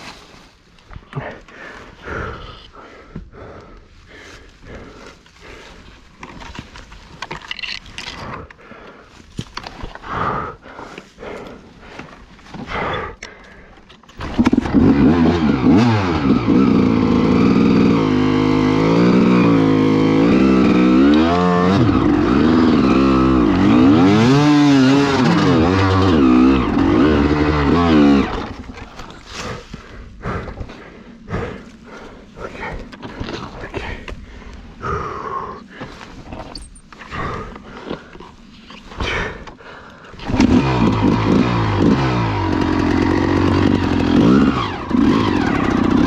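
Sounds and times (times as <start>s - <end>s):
dirt bike engine revving: 14.2s - 30.6s, 40.2s - 46.0s.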